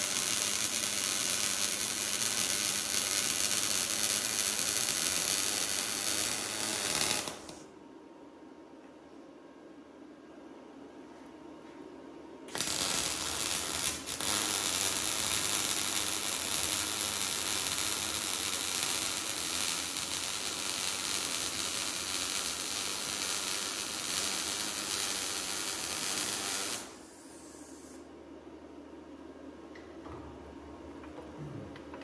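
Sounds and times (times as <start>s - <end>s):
mig welder arc: 0.0s - 7.7s, 12.5s - 28.1s.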